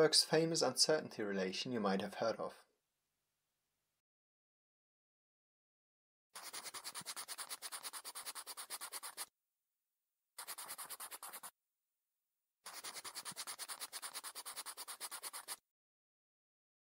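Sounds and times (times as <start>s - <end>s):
pen scratching on paper: 6.4s - 9.3s, 10.4s - 11.5s, 12.7s - 15.6s.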